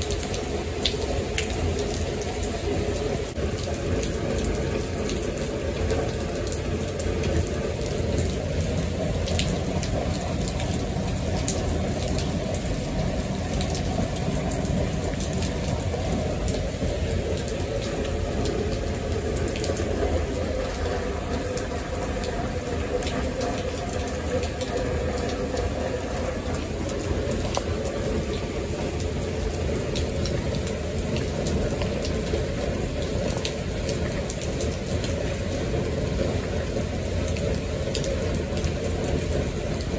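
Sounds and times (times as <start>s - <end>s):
rain falling on wet paving: 0.0s - 39.9s.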